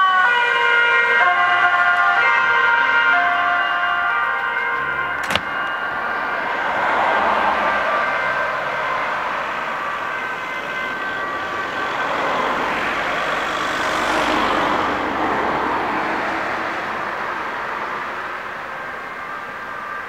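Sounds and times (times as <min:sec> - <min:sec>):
faint ambulance siren: 0:00.0 - 0:20.0
road traffic noise: 0:00.0 - 0:20.0
vehicle passing close: 0:04.8 - 0:18.6.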